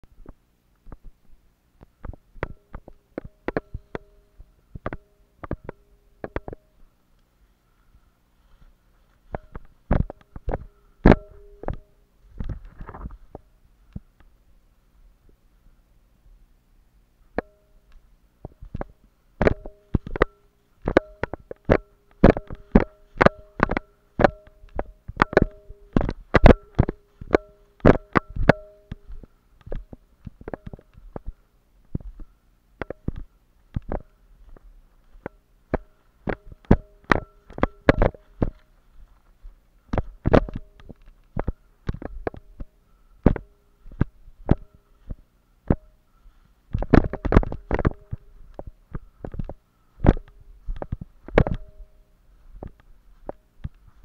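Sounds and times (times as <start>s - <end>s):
faint bell-like ringing: 10.6s - 12.1s, 19.6s - 29.2s.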